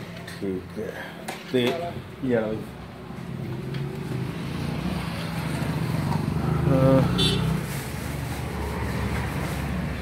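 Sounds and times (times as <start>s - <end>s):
vehicle engine passing: 2.8s - 10.0s.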